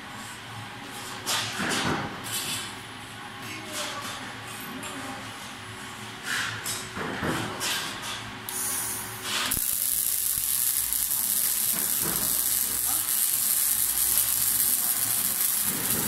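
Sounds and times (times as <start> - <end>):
arc welder crackling and sizzling: 8.5 - 16.0.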